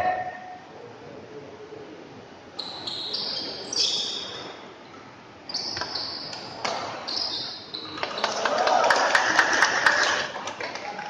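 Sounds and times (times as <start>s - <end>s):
shoes squeaking on court floor: 2.6s - 4.7s, 5.4s - 8.2s.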